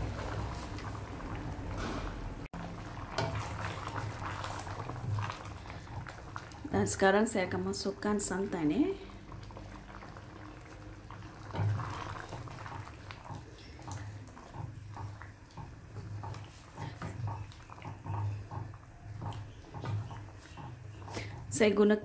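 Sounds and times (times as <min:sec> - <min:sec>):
curry bubbling in a pot: 0:00.0 - 0:01.8, 0:02.4 - 0:22.0
liquid pouring: 0:02.6 - 0:06.7, 0:08.9 - 0:21.3.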